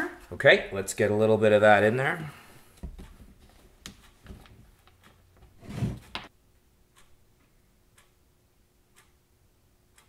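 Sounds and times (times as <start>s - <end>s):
faint clock ticking: 2.2s - 5.4s, 6.6s - 10.0s.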